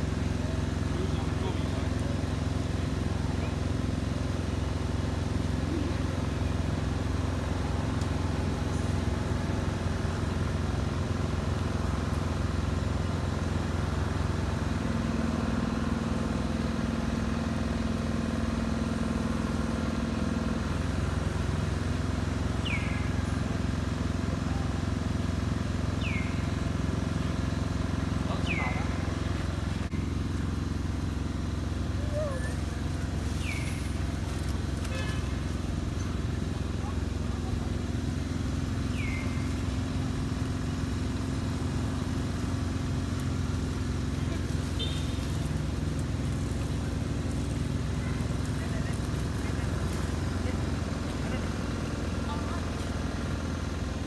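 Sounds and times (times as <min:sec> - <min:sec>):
low mechanical drone: 0:00.0 - 0:54.0.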